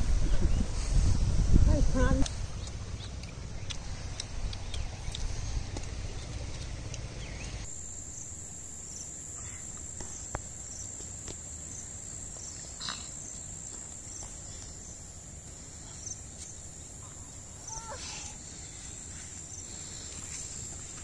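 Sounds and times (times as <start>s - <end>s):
faint clicks and chirps: 2.2s - 7.7s.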